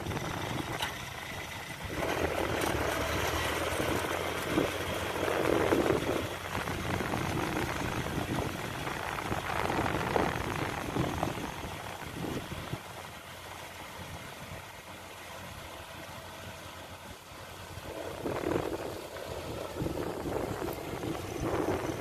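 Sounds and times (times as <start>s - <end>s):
engine running steadily: 0.0s - 22.0s
water and mud churning: 17.8s - 22.0s.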